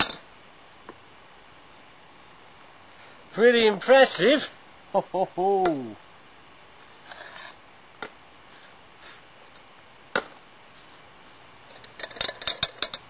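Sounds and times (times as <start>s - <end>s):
rattle of small clicks: 11.7s - 13.0s.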